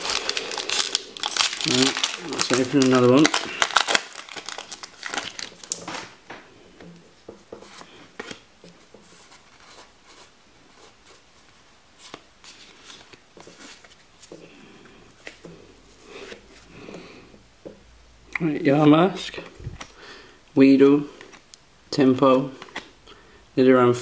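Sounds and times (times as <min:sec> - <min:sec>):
foil wrapper crinkling: 0:00.0 - 0:06.2.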